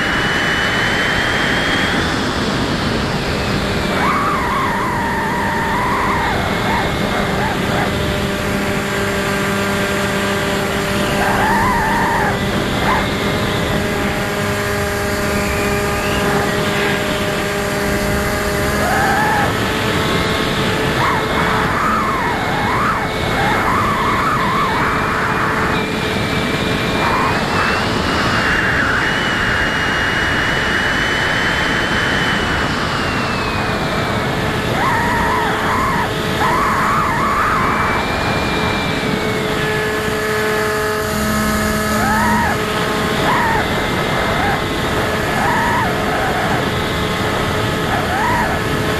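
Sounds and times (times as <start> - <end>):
electric motor and propeller whine: 0.0 - 48.9
wind rush: 0.0 - 48.9.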